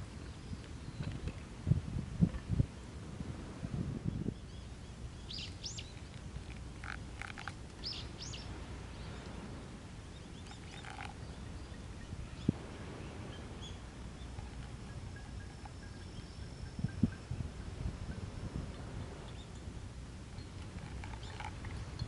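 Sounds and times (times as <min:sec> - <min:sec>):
low outdoor rumble: 0:00.0 - 0:22.0
small birds chirping: 0:00.2 - 0:01.4, 0:04.1 - 0:17.4, 0:18.1 - 0:19.7, 0:20.3 - 0:22.0.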